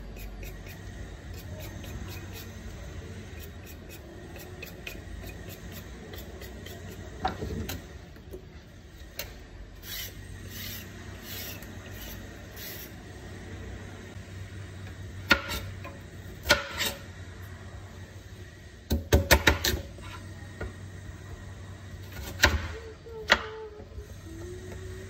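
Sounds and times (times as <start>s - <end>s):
peeler scraping a carrot: 0.0s - 7.3s, 9.8s - 13.0s.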